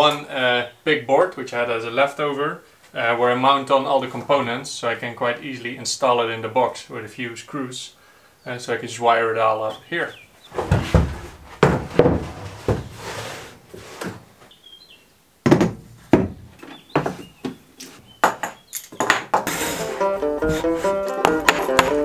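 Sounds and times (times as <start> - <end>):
board knocking on wooden workbench: 10.6 - 13.0, 15.4 - 17.6, 20.4 - 22.0
banjo music: 19.5 - 22.0.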